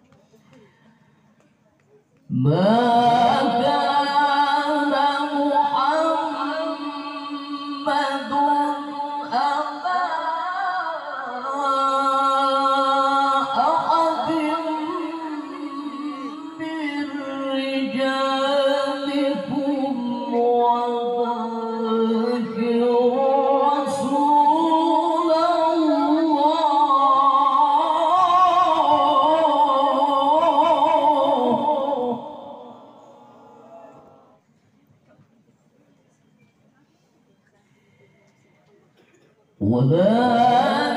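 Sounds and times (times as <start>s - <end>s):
man chanting into a microphone: 39.6s - 40.9s.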